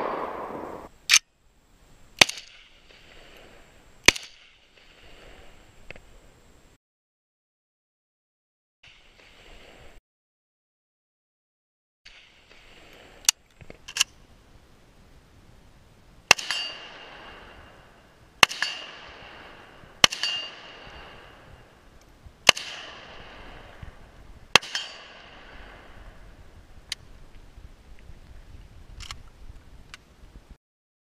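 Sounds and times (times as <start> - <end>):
rifle shots with echo: 0.0 - 0.9, 16.3 - 17.5, 18.4 - 21.5, 22.4 - 23.8, 24.5 - 25.9.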